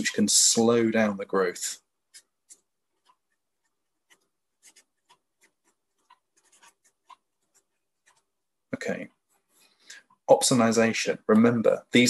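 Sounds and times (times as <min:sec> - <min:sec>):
marker pen writing on paper: 0:02.0 - 0:08.5.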